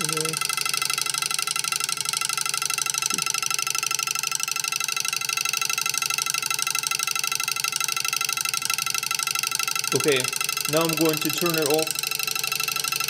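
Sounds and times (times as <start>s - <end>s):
vibrating switch buzzing: 0.0s - 13.0s.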